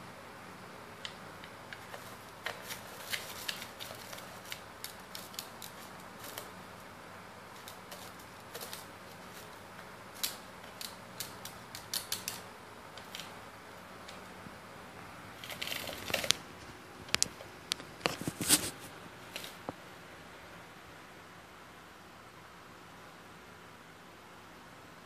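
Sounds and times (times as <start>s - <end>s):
bird digging through dry rice: 1.7s - 12.4s, 18.0s - 19.6s.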